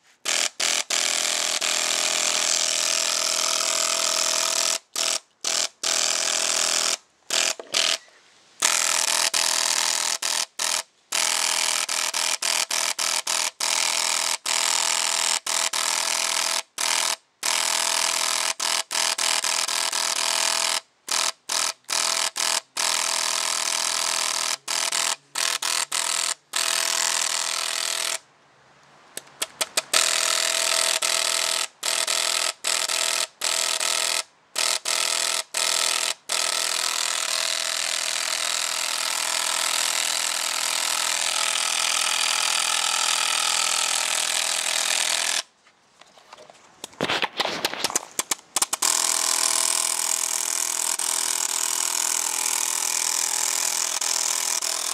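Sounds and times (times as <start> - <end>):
paintball marker rapid firing: 29.2 - 41.4, 46.9 - 54.9.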